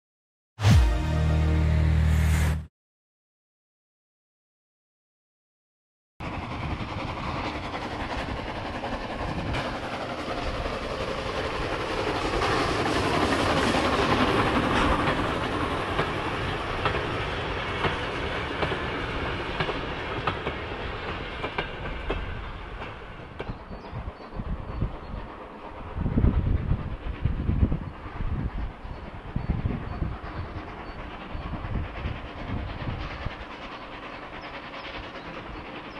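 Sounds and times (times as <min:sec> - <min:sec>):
steam train passing: 0:06.2 - 0:35.9.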